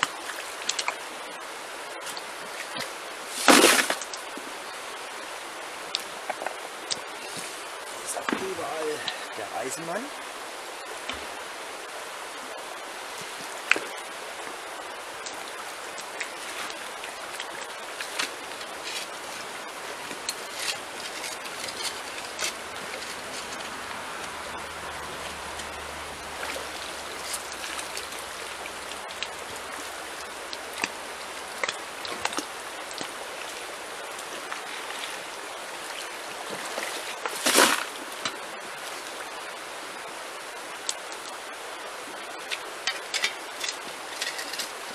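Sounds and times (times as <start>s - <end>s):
shallow river over stones: 0.0s - 44.9s.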